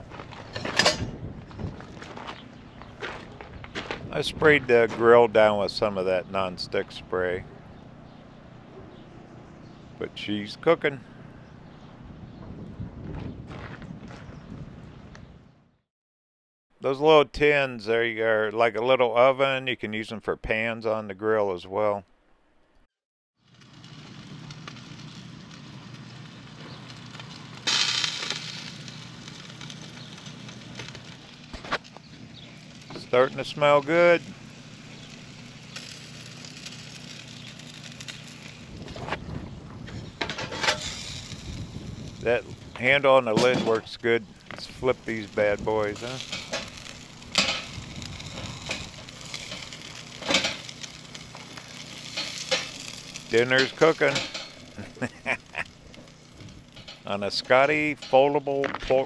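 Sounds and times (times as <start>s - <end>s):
patties sizzling on a grill: 23.4s - 59.0s.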